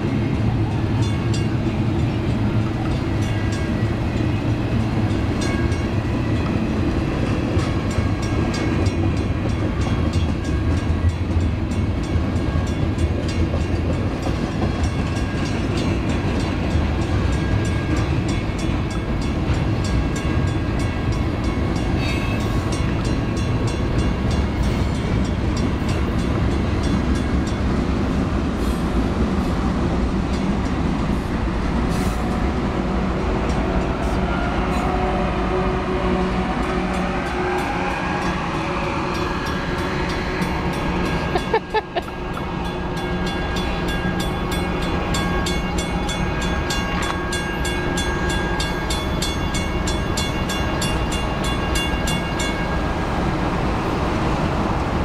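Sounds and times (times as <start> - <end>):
diesel locomotive engines: 0.0 - 55.0
train rumbling past: 0.0 - 55.0.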